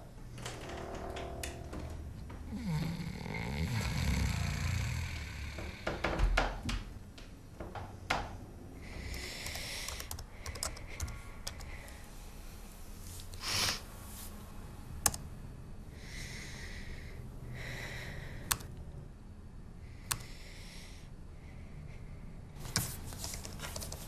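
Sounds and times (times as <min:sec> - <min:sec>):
computer keyboard keystrokes: 0:09.1 - 0:11.7, 0:22.7 - 0:24.0.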